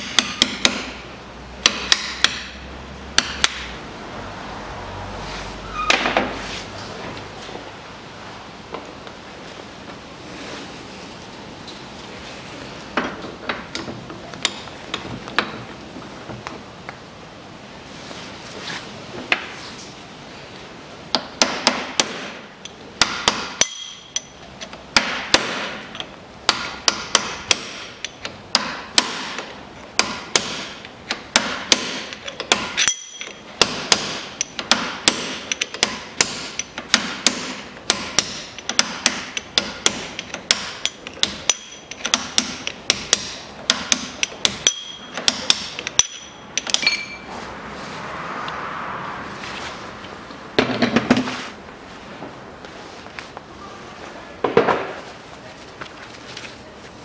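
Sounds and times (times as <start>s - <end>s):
hammer striking steel drift: 3.2s - 3.7s, 23.0s - 24.4s, 31.4s - 47.3s.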